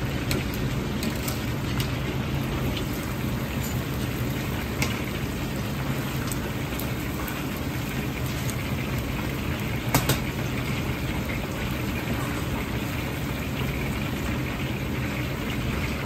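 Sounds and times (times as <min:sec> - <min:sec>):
low rumble of wok burner: 0:00.0 - 0:16.0
oil sizzling while deep-frying: 0:00.0 - 0:16.0.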